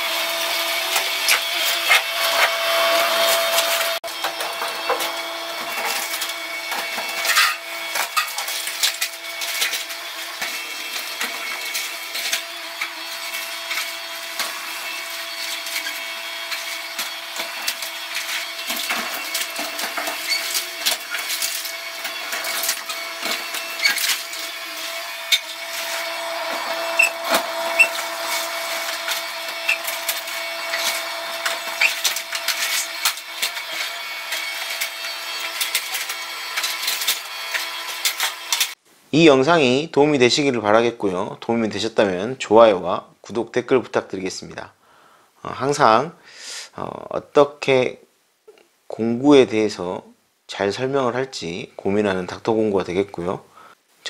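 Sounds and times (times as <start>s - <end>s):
machine whine: 0.0s - 38.8s.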